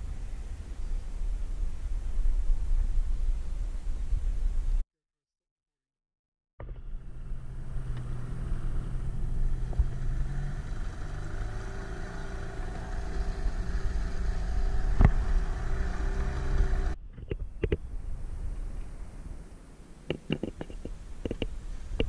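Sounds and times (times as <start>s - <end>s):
wind: 0.0s - 4.8s, 6.6s - 22.0s
outboard motor running: 6.6s - 17.0s.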